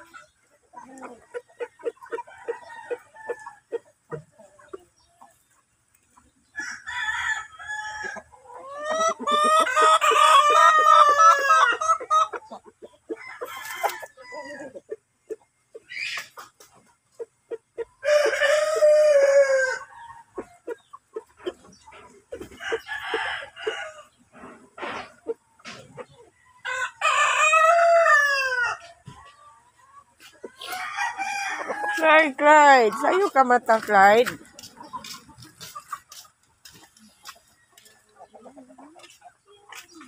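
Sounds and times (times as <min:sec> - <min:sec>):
hens clucking: 0:00.0 - 0:40.0
roosters crowing: 0:01.9 - 0:03.8, 0:06.6 - 0:12.5, 0:13.1 - 0:14.8, 0:18.0 - 0:20.4, 0:22.4 - 0:24.6, 0:26.4 - 0:28.9, 0:30.6 - 0:33.2.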